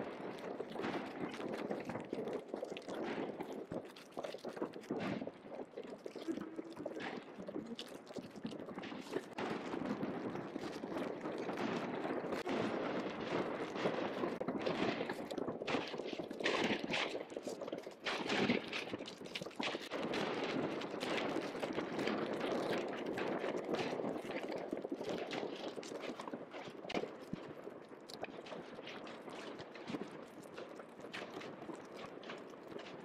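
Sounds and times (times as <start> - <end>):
fireworks popping and crackling: 0.0 - 33.0.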